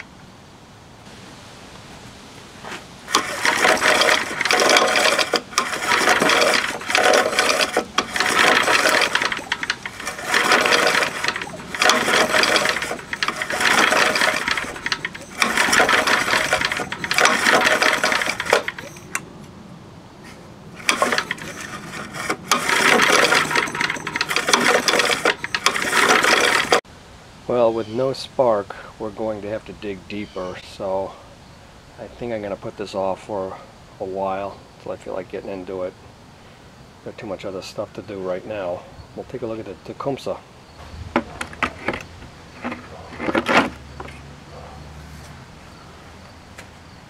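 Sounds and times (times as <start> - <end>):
recoil starter spinning engine: 3.1 - 19.2, 20.8 - 26.8.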